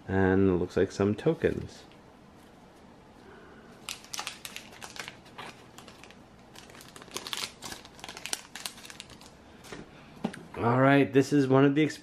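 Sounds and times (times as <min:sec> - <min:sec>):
plastic packaging crinkling: 0:03.8 - 0:09.4.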